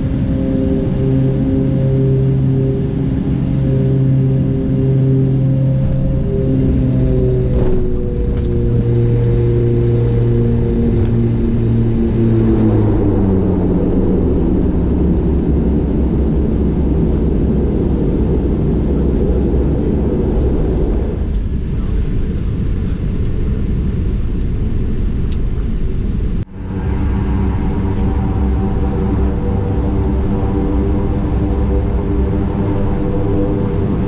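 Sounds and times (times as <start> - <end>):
turboprop propellers: 0.0 - 34.0
roar of reversed propellers: 5.0 - 21.4.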